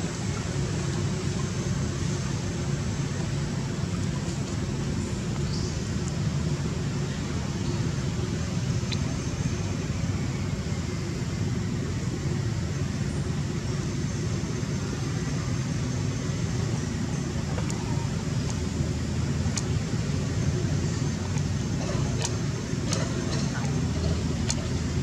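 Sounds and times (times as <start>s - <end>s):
low rumbling background noise: 0.0s - 25.0s
faint high ticks: 19.5s - 20.1s.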